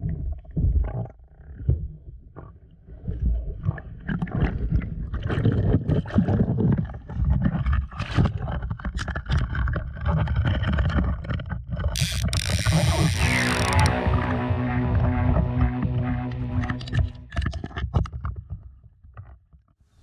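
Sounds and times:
music: 12.0s - 17.4s.

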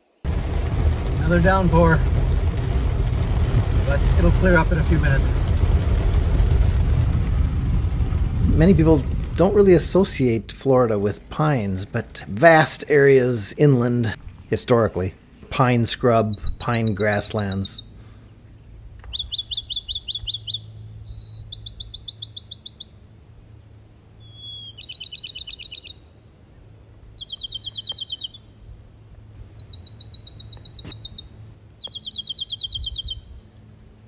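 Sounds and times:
sparrow whistle and trill song: 16.2s - 18.0s, 18.6s - 22.9s, 23.8s - 26.1s, 26.8s - 28.4s, 29.5s - 33.4s.

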